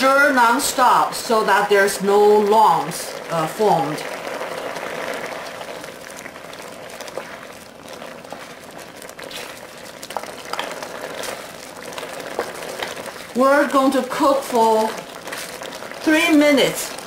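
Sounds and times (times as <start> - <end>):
broth boiling: 0.0 - 17.0
liquid pouring: 0.0 - 17.0.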